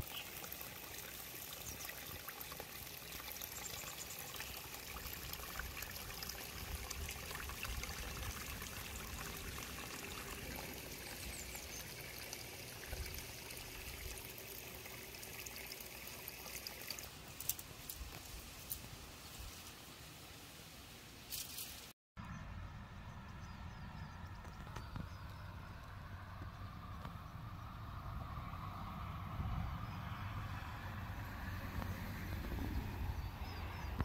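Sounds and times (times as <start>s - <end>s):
water trickling in a ditch: 0.0s - 21.9s.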